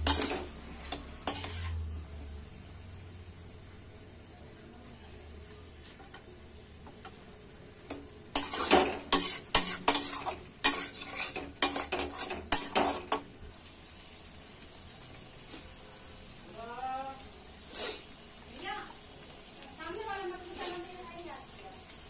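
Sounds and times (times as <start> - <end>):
metal spatula scraping a pan: 0.0 - 1.9, 5.8 - 6.3, 7.9 - 13.3, 20.4 - 21.0
meat sizzling: 0.0 - 4.2, 5.2 - 22.0.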